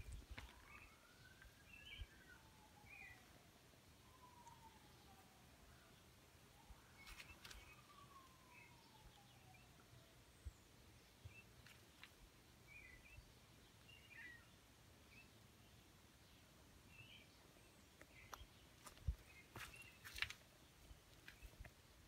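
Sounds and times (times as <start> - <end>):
distant bird chirps: 0.0 - 3.3, 4.0 - 15.8.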